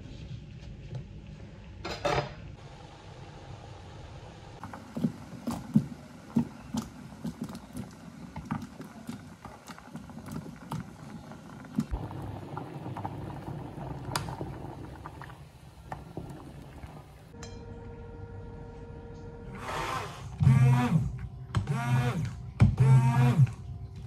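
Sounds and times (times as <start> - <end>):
water boiling: 2.6 - 17.4.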